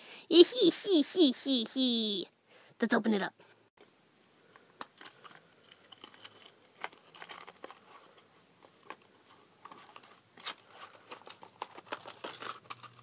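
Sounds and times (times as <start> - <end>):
cardboard box crinkling: 5.0 - 13.0.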